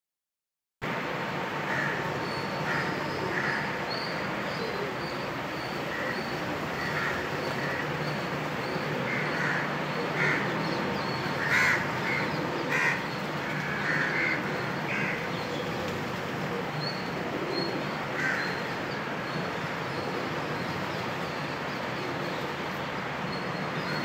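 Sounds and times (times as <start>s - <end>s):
steady background hum: 0.9s - 24.0s
crows cawing: 1.7s - 3.8s, 5.9s - 8.1s, 9.0s - 15.4s, 18.1s - 18.8s.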